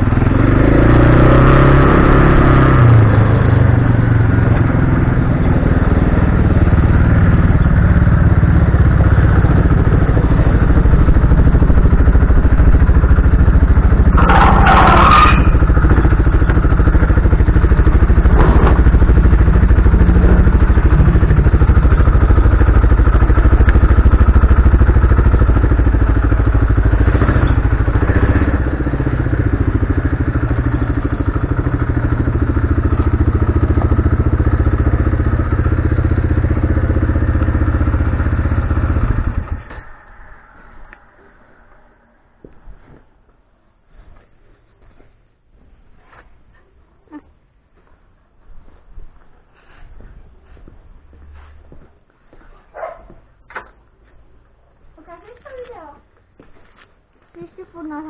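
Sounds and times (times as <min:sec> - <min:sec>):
quad engine running: 0:00.0 - 0:42.6.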